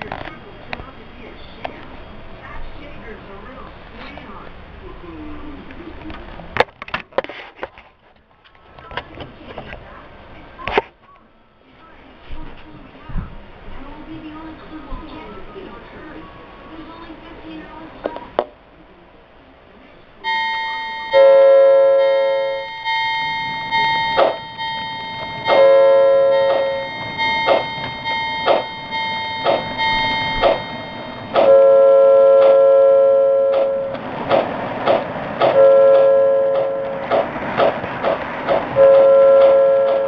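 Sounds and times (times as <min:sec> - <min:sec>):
steady higher tone: 0:20.2 - 0:34.2, 0:35.5 - 0:37.2, 0:38.7 - 0:40.0
wheels clicking over rail joints: 0:33.5 - 0:40.0.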